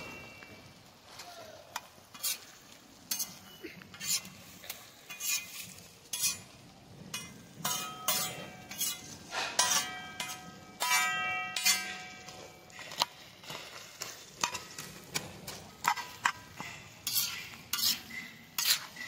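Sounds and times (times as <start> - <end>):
pot ringing steady tone: 0.0 - 0.9, 3.1 - 3.8, 7.1 - 8.9, 9.6 - 13.2
food sizzling: 0.0 - 19.0
spoon scraping in a pan: 1.1 - 19.0.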